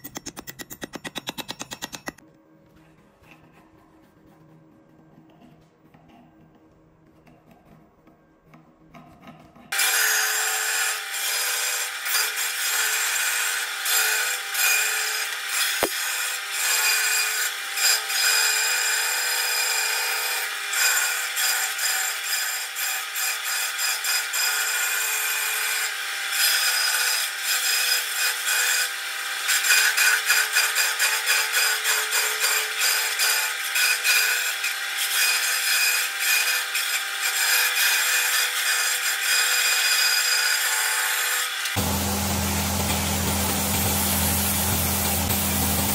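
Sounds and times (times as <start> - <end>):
band saw cutting wood: 9.7 - 45.9.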